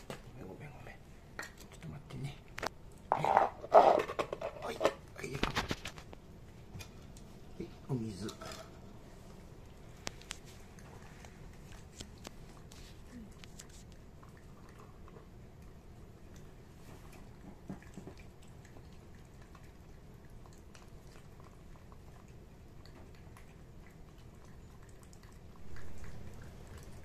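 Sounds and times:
cat chewing: 9.0s - 27.0s.

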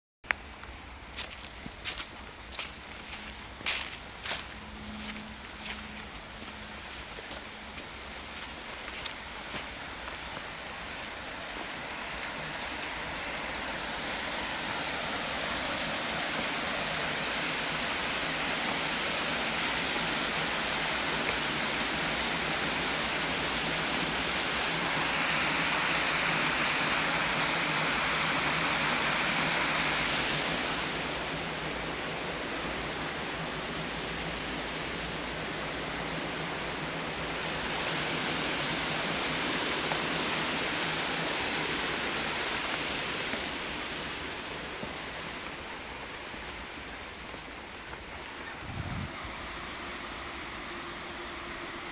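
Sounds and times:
shallow water rushing: 1.1s - 51.9s.

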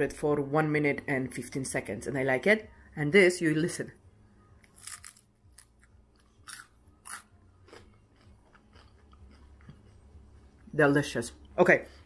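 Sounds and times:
crispy cheese crunching: 4.7s - 10.0s.

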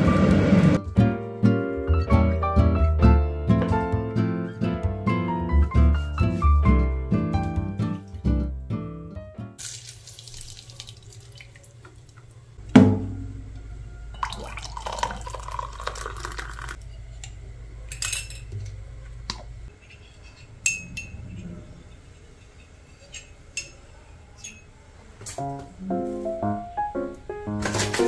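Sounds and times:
soft music: 0.0s - 9.6s, 25.4s - 28.0s
water pouring into mug: 9.6s - 11.8s, 14.2s - 16.8s
loud knock: 12.8s - 13.4s.

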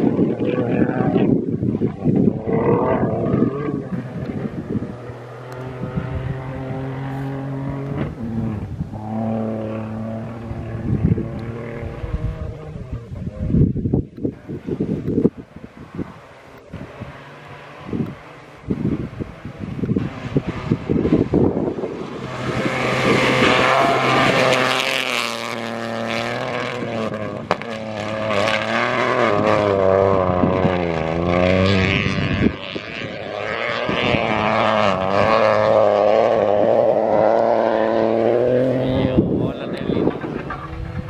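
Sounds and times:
low drone: 0.0s - 13.9s
rally car engine revving: 0.0s - 41.0s.

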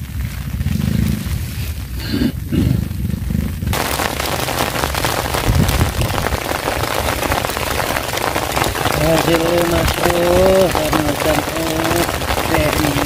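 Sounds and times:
low rumble: 0.0s - 8.0s
heavy rain on water: 0.0s - 13.0s.

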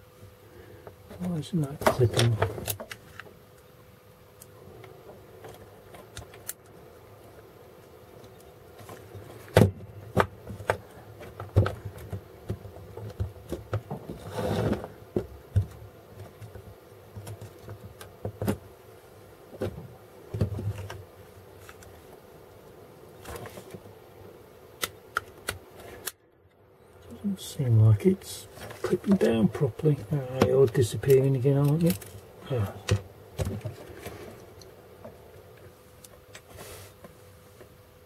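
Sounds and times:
plastic scrape: 14.1s - 15.0s.

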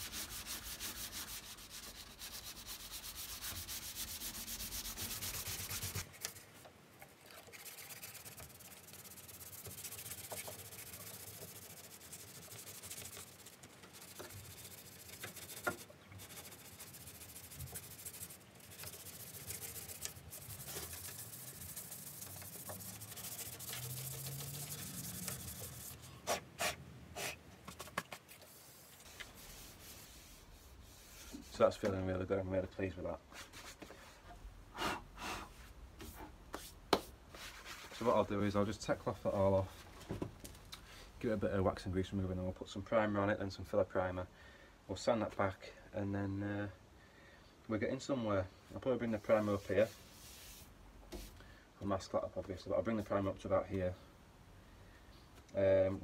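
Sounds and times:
hand sanding with sandpaper: 0.0s - 6.4s, 7.5s - 27.4s, 28.4s - 31.9s, 36.0s - 38.4s, 49.0s - 51.4s.

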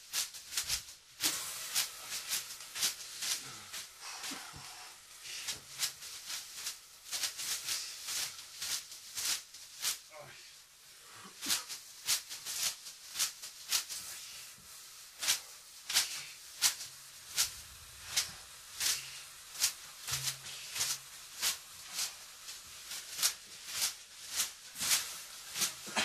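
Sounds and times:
crisp slapping strikes: 15.2s - 26.0s.

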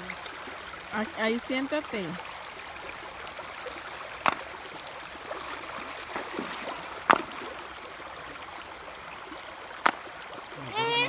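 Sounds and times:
river water over stones: 0.0s - 11.0s
feet splashing in water: 2.3s - 10.8s.

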